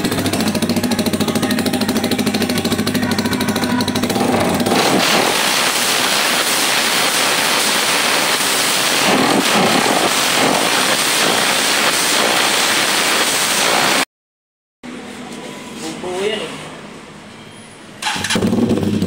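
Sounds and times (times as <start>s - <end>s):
motorcycle engine idling: 0.0s - 4.7s
exhaust rushing hiss: 0.0s - 14.0s.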